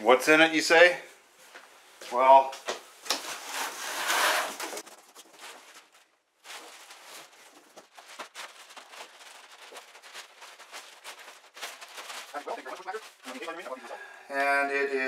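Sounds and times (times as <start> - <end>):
cardboard rustling: 3.1 - 13.8
plastic sheeting crinkling: 3.1 - 14.0.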